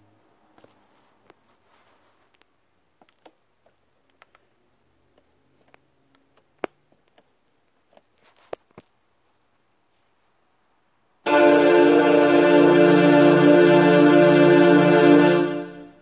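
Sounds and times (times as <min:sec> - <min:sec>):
faint clicks and taps: 0:02.2 - 0:04.5, 0:05.1 - 0:09.0.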